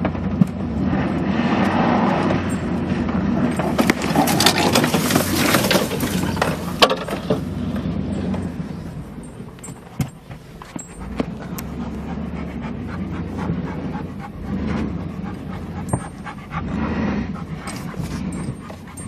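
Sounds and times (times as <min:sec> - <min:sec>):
engine rumble: 0:00.0 - 0:19.0
body and suspension knocks and rattles: 0:02.2 - 0:19.0.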